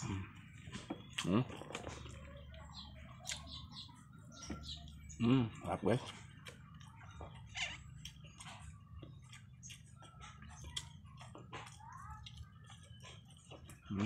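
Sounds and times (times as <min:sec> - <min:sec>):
person chewing with lip smacks: 0:03.1 - 0:03.6, 0:07.7 - 0:13.8.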